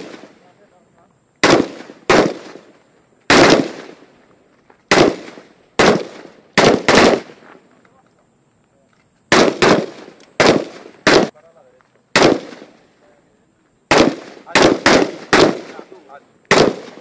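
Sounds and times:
gunshots with echo: 1.4 - 2.6, 3.3 - 4.0, 4.9 - 7.3, 9.3 - 11.3, 12.2 - 12.7, 13.9 - 15.9, 16.5 - 17.0.

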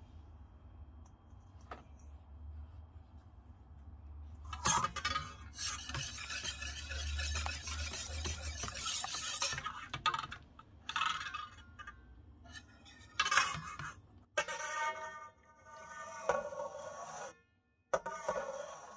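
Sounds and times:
whisk scraping metal bowl: 4.5 - 10.3.

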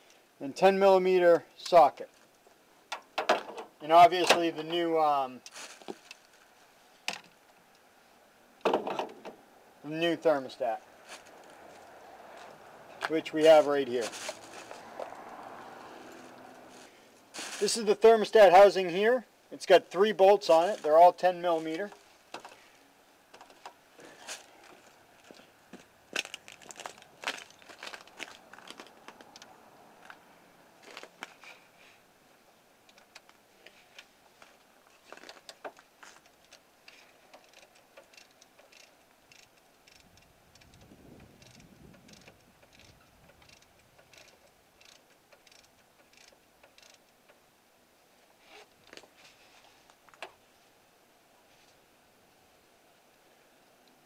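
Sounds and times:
ratchet clicking on bolts: 37.3 - 40.8, 41.4 - 47.4.

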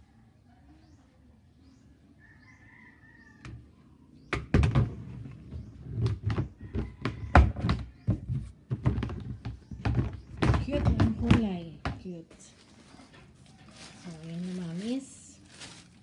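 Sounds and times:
plastic knocks and thumps: 4.3 - 12.2.

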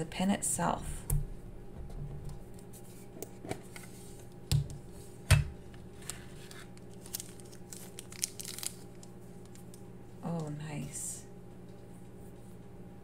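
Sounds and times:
plastic sleeve crinkling: 5.8 - 9.8.

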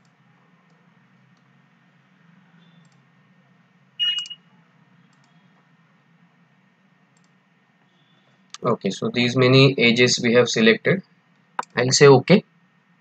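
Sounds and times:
low steady hum: 0.0 - 13.0
high beep-like tone: 4.0 - 4.4
computer mouse clicking: 5.1 - 5.4, 7.1 - 7.4, 11.3 - 11.8.

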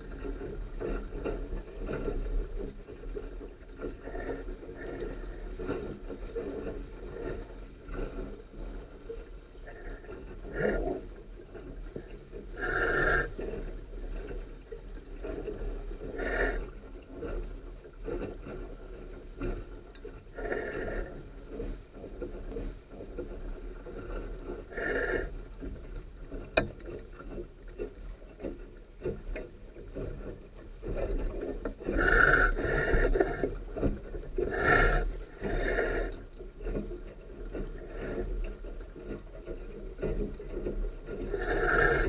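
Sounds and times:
water rushing along a boat hull: 0.0 - 42.0.

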